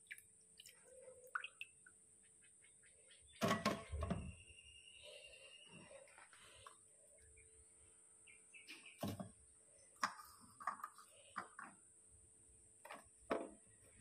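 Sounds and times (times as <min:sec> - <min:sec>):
short bird-like chirps: 0:08.3 - 0:09.1.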